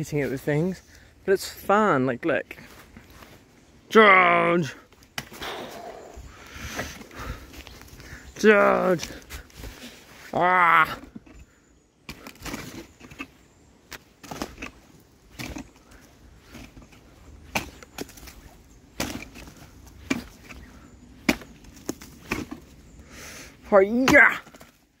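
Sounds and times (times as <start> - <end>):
stick knocking on rotting wood: 16.5 - 22.7, 24.0 - 24.8.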